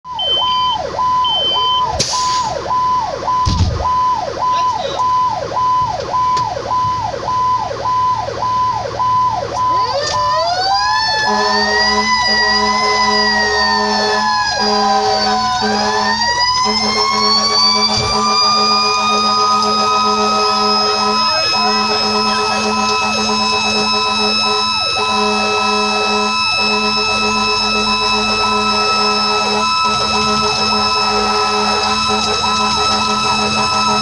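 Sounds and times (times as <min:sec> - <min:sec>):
fast cycling siren: 0:00.0 - 0:34.0
wailing siren: 0:00.0 - 0:34.0
horn blasts: 0:11.1 - 0:34.0.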